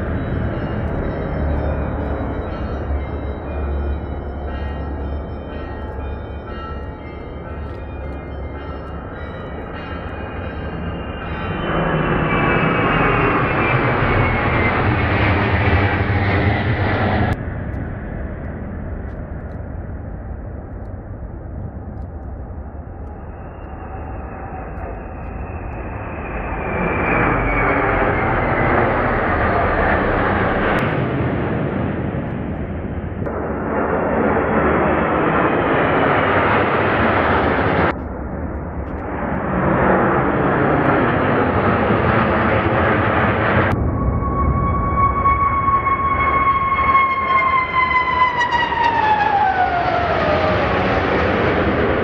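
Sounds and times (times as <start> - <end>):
jet fighters roaring overhead: 0.0 - 52.0
faint falling jet whine: 10.0 - 20.0, 21.8 - 38.0, 38.8 - 52.0.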